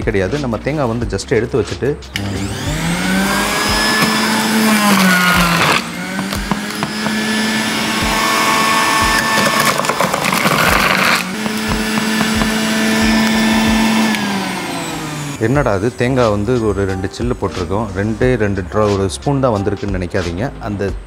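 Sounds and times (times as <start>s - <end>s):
electric juicer motor running: 2.1s - 15.6s.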